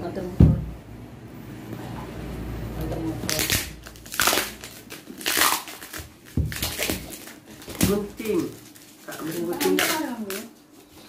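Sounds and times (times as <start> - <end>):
gift wrapping crinkling: 3.2 - 11.0.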